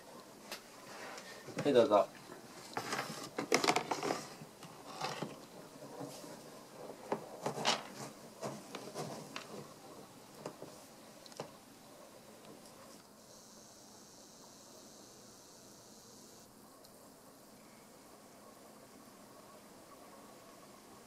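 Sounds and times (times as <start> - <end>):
cat scratching in pellet litter: 7.2 - 10.0.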